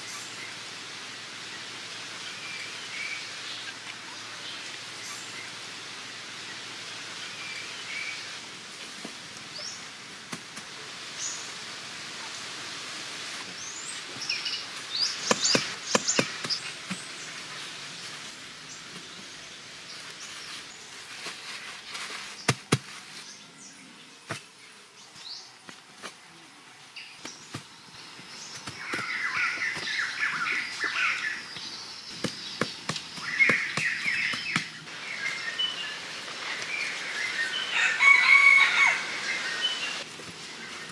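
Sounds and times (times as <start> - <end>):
high insect hiss: 26.8 - 40.9.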